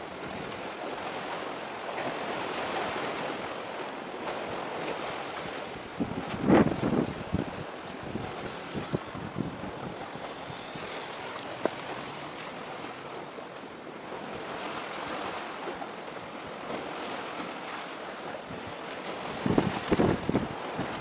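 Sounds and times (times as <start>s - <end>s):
sea waves: 0.0s - 21.0s
wind buffeting microphone: 4.2s - 21.0s.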